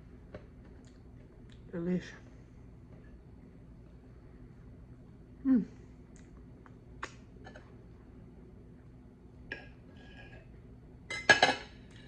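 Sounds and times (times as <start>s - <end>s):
tableware clink: 11.1s - 11.8s.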